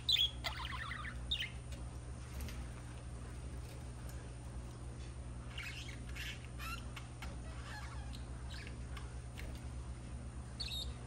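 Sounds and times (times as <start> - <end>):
steady low hum: 0.0 - 11.0
budgerigars chattering: 0.1 - 1.6.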